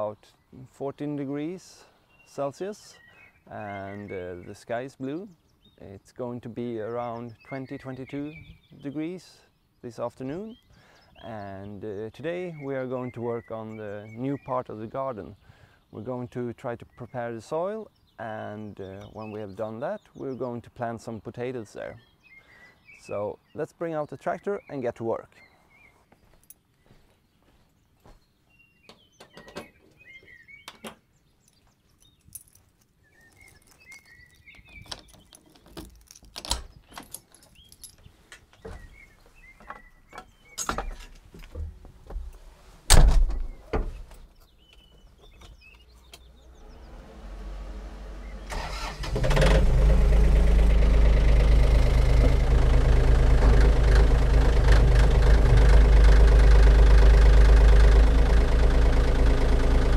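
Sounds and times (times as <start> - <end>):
tractor engine cranking and running: 47.8 - 59.9
knocks and clatter in tractor cab: 52.0 - 56.3.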